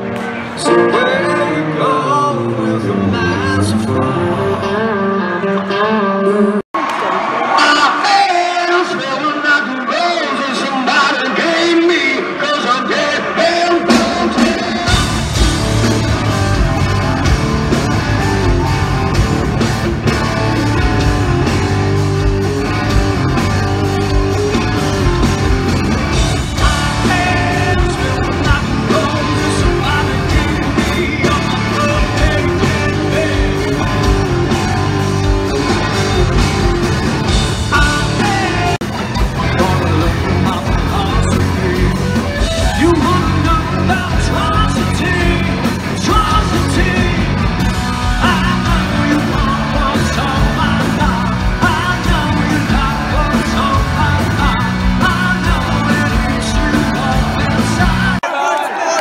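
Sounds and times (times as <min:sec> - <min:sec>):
person singing: 0:00.0 - 0:06.7, 0:22.8 - 0:59.0
rock band playing: 0:00.0 - 0:58.8.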